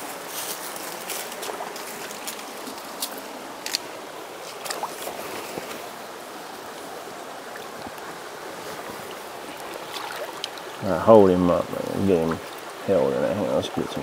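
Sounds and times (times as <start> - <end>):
creek running over gravel: 0.0 - 14.0
splashes from wading: 1.0 - 6.0, 8.6 - 10.8.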